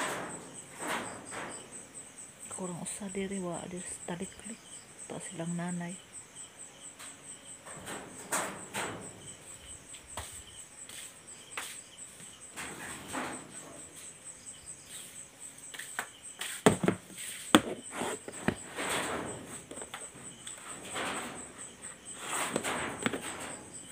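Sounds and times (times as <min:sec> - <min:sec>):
crickets chirping: 0:00.0 - 0:23.9
footsteps: 0:07.0 - 0:23.9
handling noises: 0:07.0 - 0:23.9.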